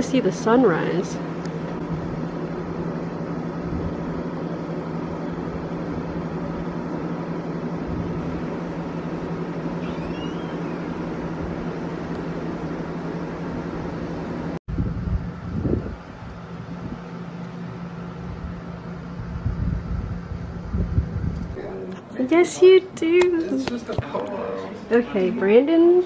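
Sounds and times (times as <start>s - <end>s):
low mechanical hum: 0.0s - 26.0s
faint high chirp: 9.8s - 11.0s.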